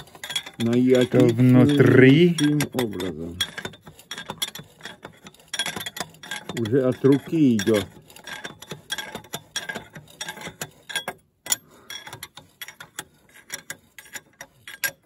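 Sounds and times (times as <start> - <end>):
metallic clicking and ticking: 0.0 - 15.0.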